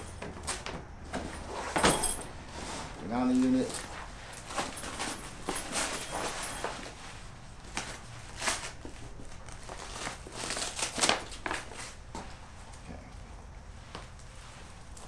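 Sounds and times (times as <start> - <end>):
backpack straps rustling: 0.0 - 12.0.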